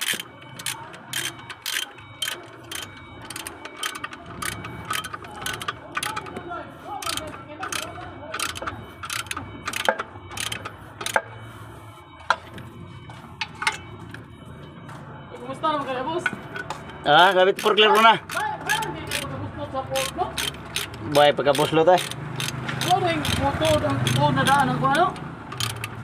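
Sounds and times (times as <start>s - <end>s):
ratchet wrench clicking: 0.0s - 6.3s, 7.0s - 11.2s, 17.6s - 19.3s, 19.9s - 26.0s.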